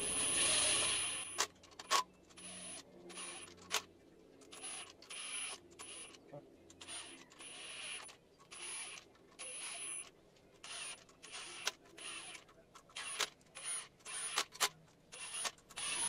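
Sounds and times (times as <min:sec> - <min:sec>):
sharp clicks: 0:00.8 - 0:16.0
cordless power driver bursts: 0:13.0 - 0:16.0.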